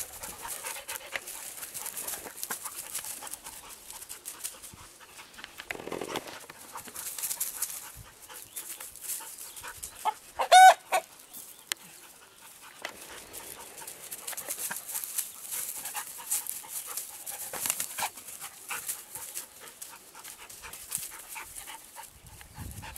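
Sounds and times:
animals scuffling on straw: 0.0s - 22.9s
high-pitched animal cry: 10.4s - 11.0s.

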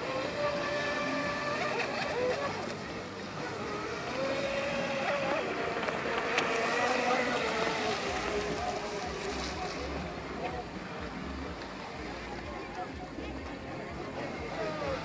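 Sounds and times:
rc speedboat motor whine: 0.0s - 15.0s.

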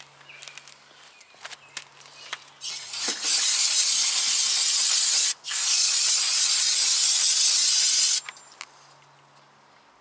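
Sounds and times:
aerosol can spraying: 2.7s - 8.2s.

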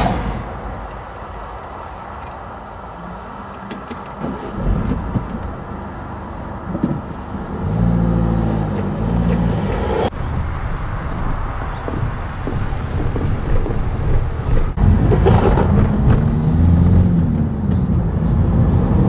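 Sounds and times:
car engine passing close: 4.2s - 13.2s.

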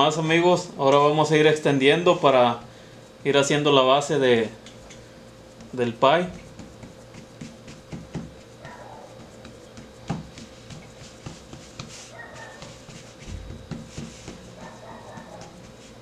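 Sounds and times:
faint steady hum: 0.0s - 16.0s
hands tapping crust in metal pan: 6.4s - 12.0s.

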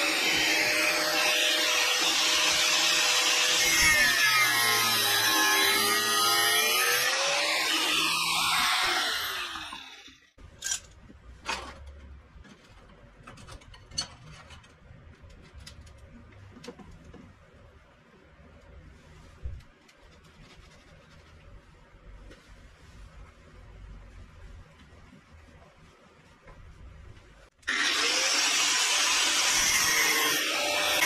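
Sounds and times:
power tool running: 0.0s - 10.2s, 27.6s - 31.0s.

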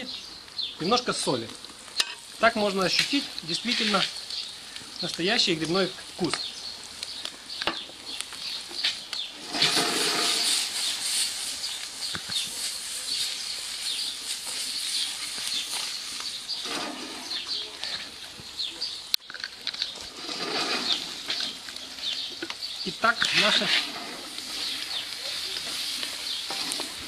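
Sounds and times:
food sizzling in a wok: 9.3s - 17.6s, 20.1s - 27.0s
food swishing around wok: 9.4s - 11.8s, 23.2s - 27.0s.

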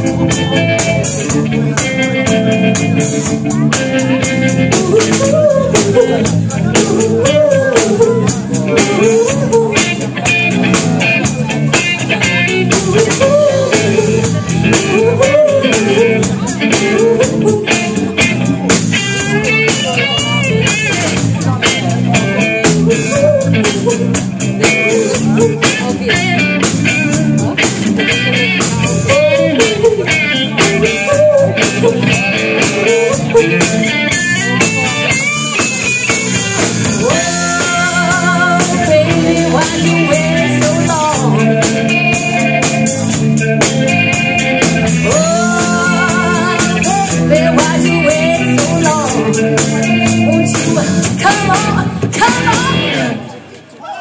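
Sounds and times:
drum kit beat: 0.0s - 53.2s
electric guitars: 0.0s - 53.8s
woman singing: 3.7s - 10.6s, 11.8s - 20.4s, 22.1s - 27.4s, 28.0s - 33.9s, 36.9s - 42.9s, 44.8s - 53.1s.

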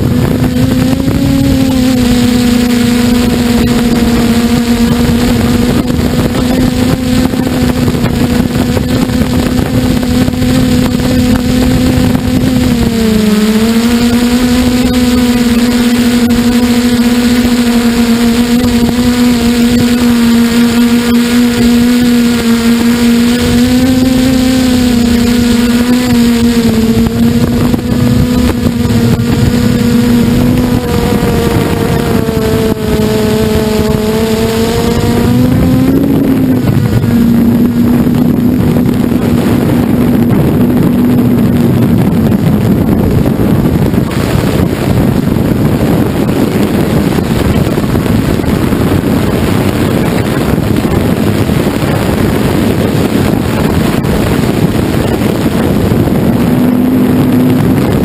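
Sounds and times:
model aircraft motor whine: 0.0s - 58.0s
wind rushing over camera: 0.0s - 58.0s.

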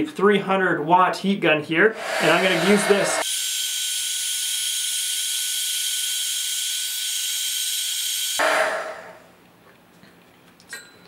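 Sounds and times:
heat gun fan hissing: 1.9s - 3.3s.

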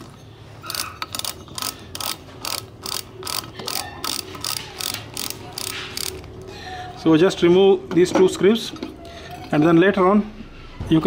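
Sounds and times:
ratcheting screwdriver clicking: 0.6s - 6.3s.

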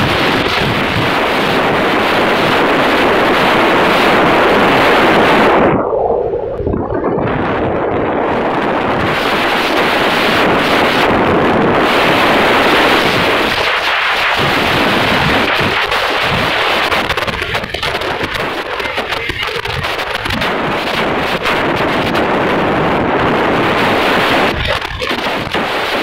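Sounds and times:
wind buffeting microphone: 0.0s - 26.0s.

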